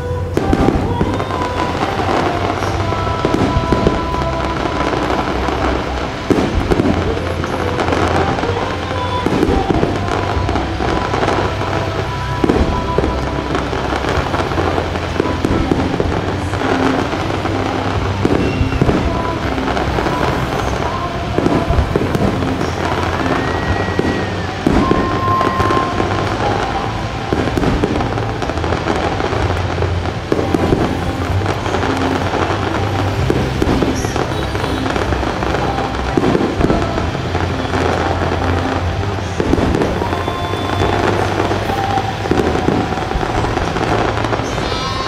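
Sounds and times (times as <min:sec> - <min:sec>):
fireworks bangs: 0:00.0 - 0:45.0
fireworks crackling and popping: 0:00.0 - 0:45.0.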